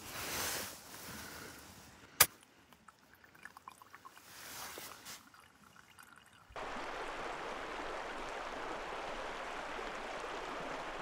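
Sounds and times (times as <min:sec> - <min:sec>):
water trickling and gurgling: 0:02.7 - 0:11.0
stream rushing: 0:06.5 - 0:11.0.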